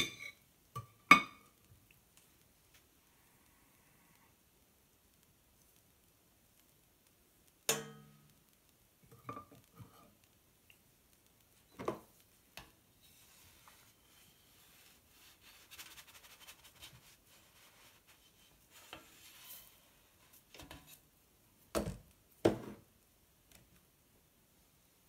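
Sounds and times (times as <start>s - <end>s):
spatula scraping griddle: 16.7s - 21.0s.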